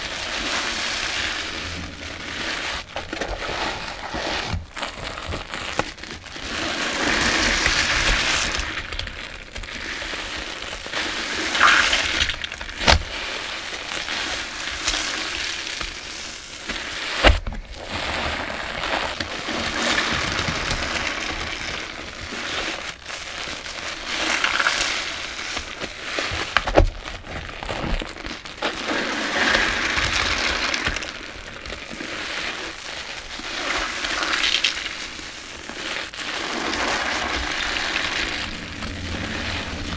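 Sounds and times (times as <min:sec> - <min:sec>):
soapy water streaming: 0:00.0 - 0:05.6, 0:10.8 - 0:12.6, 0:18.0 - 0:23.0, 0:28.8 - 0:39.9
sponges squelching with suds: 0:00.0 - 0:39.9.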